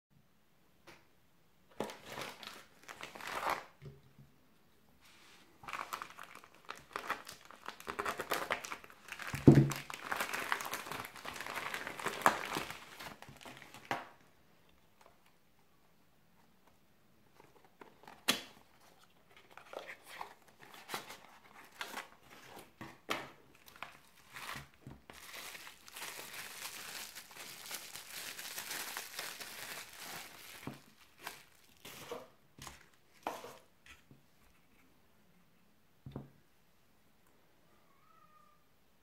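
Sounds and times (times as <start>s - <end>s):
bubble wrap crinkling: 1.7s - 3.8s, 5.2s - 14.2s, 23.5s - 33.7s.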